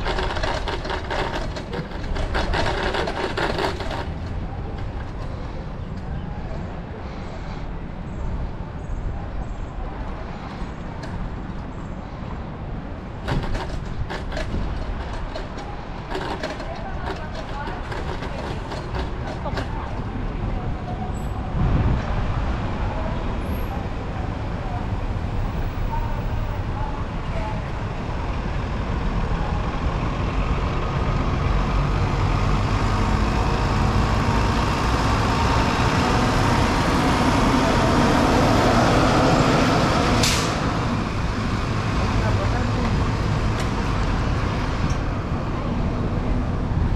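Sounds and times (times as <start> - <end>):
bicycle rattling over paving: 0.0 - 6.3, 13.0 - 20.7
wind rumble on microphone: 0.0 - 46.9.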